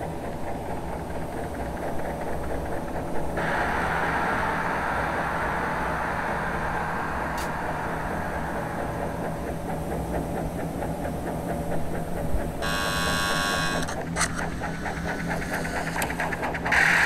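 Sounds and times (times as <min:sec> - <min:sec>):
loud high-pitched whine: 0:03.4 - 0:10.0, 0:12.6 - 0:17.0
lathe machine hum: 0:04.9 - 0:17.0.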